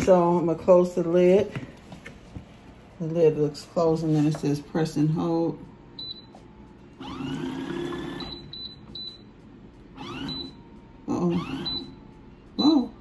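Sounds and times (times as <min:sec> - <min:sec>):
washing machine motor whine: 0:03.0 - 0:13.0.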